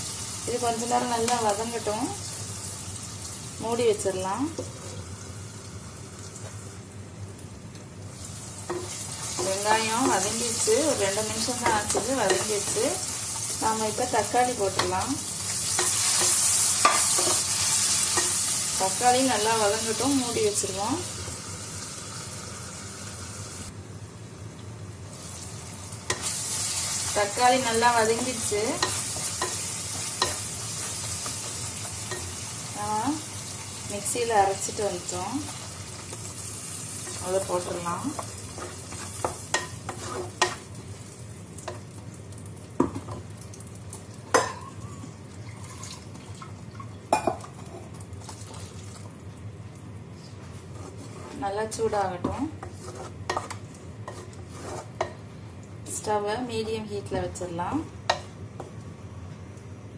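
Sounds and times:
vegetables sizzling in oil: 0:00.0 - 0:58.8
spoon stirring thick paste: 0:52.2 - 0:55.1.

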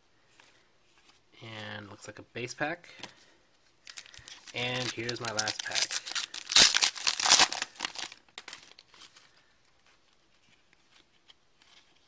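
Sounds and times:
foil wrapper crinkling: 0:03.8 - 0:09.4
cards ticking: 0:03.9 - 0:08.7.

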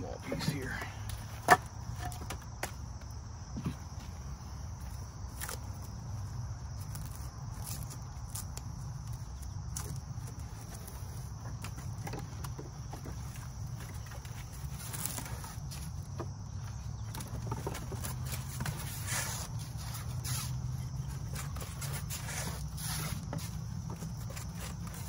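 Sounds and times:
firewood knocks and clicks: 0:00.4 - 0:03.8.

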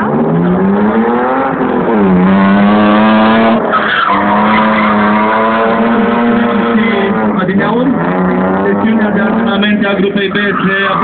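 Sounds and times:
car engine at high revs: 0:00.0 - 0:11.0
tyre squeal: 0:03.7 - 0:07.0.

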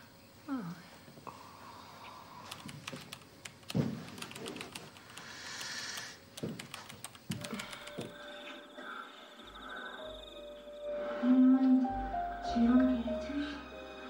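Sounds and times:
keyboard typing: 0:02.5 - 0:08.4
faint steady tone: 0:07.6 - 0:13.1.

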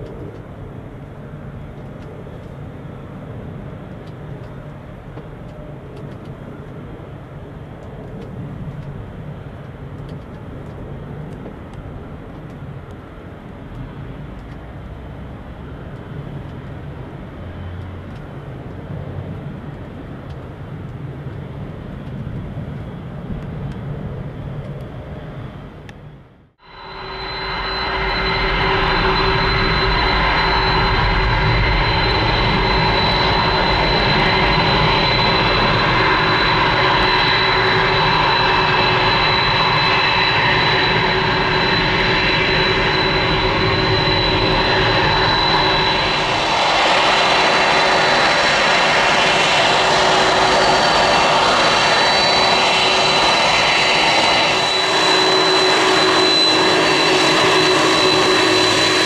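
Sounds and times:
jet engines whining and rushing: 0:26.6 - 0:59.0.

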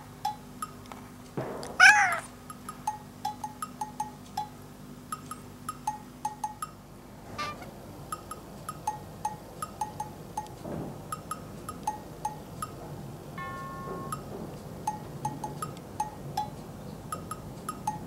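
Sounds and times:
plinking bell-like tune: 0:13.4 - 0:14.3.

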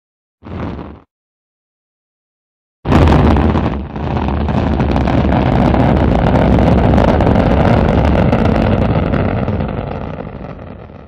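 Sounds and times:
rocket engine rumble: 0:02.9 - 0:11.0.

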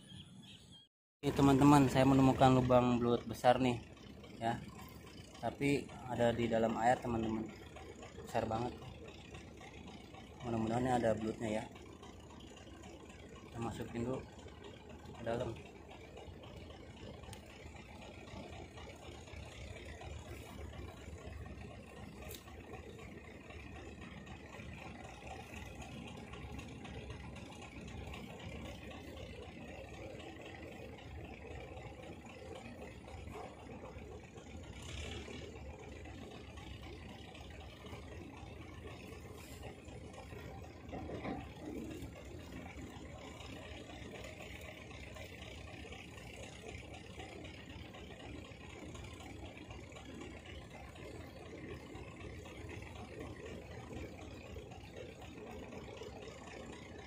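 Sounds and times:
low outdoor rumble: 0:01.2 - 0:57.0.

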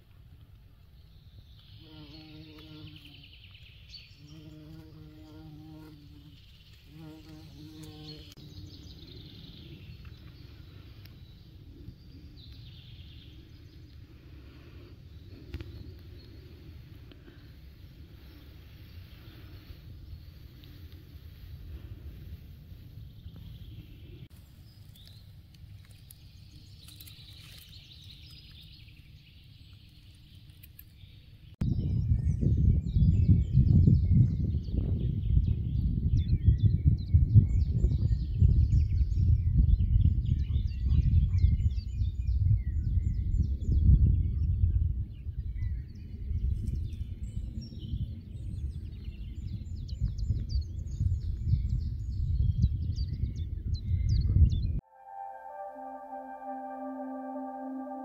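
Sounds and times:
flying insect buzzing: 0:04.2 - 0:08.6
wind on microphone: 0:31.6 - 0:54.8.

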